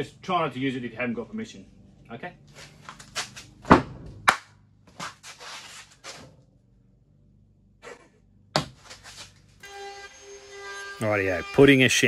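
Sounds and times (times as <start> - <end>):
scraping rub on wood: 5.0 - 6.2, 8.8 - 9.5.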